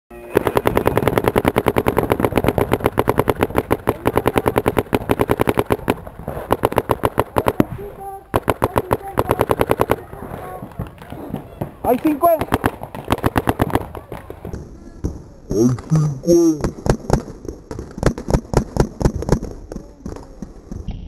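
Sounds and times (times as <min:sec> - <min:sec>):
paintball markers firing: 0:00.2 - 0:14.6, 0:16.6 - 0:20.8.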